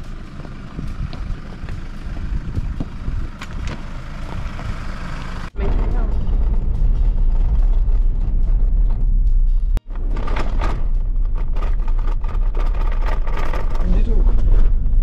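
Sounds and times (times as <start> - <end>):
tyres crunching over loose stones: 0.0 - 4.9, 9.9 - 14.9
car engine running: 0.0 - 15.0
low rumble of driving on gravel: 0.0 - 15.0.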